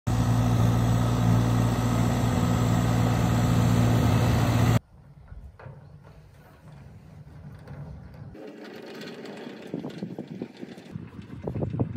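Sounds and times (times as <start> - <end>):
tractor diesel engine running: 0.1 - 4.8, 7.4 - 11.9.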